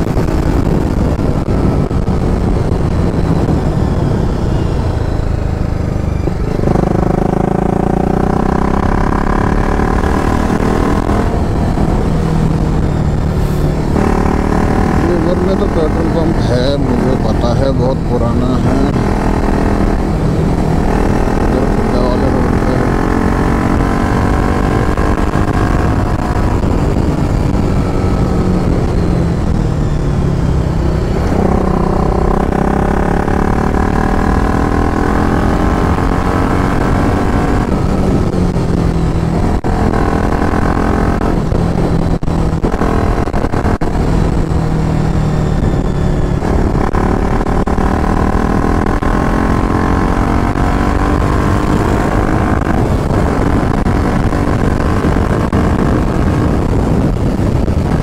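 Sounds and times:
motorcycle engine accelerating: 0.0s - 58.0s
wind noise: 0.0s - 58.0s.

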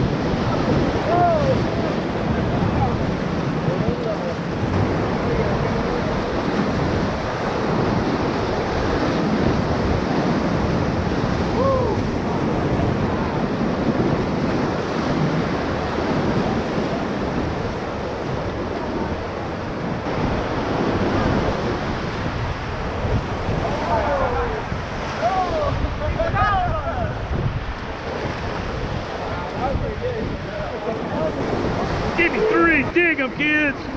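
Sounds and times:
whitewater rapids rushing: 0.0s - 29.8s, 30.4s - 33.9s.

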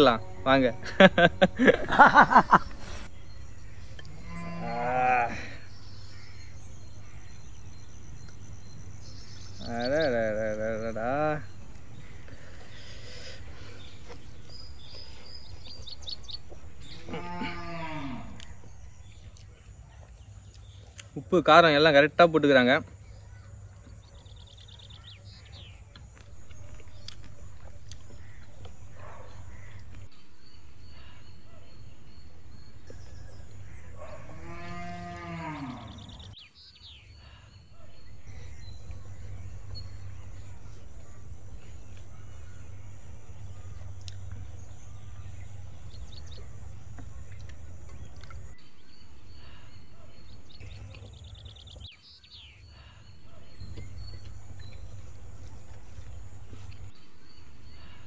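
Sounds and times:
steady low hum: 0.0s - 19.4s, 26.1s - 36.4s, 37.3s - 51.2s, 52.8s - 58.0s
bird chirps: 0.0s - 21.2s, 22.9s - 58.0s
cow mooing: 4.0s - 7.0s, 16.8s - 18.7s, 31.8s - 36.2s.

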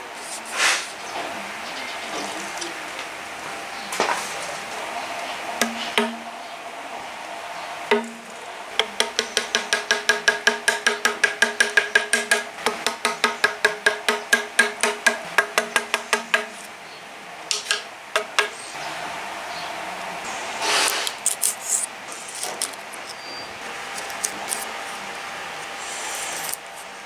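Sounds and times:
hammer tapping chisel into wood: 5.6s - 6.2s, 7.9s - 8.2s, 8.8s - 16.5s, 17.5s - 18.6s.

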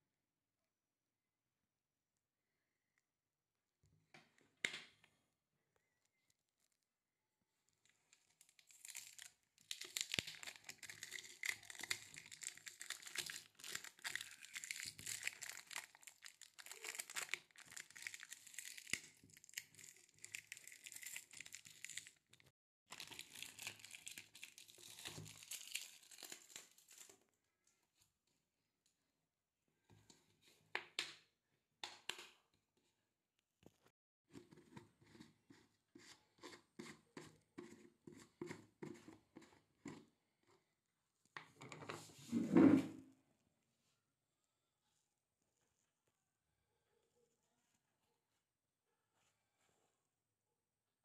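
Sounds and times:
plastic film crinkling: 8.4s - 22.2s, 22.9s - 27.1s.

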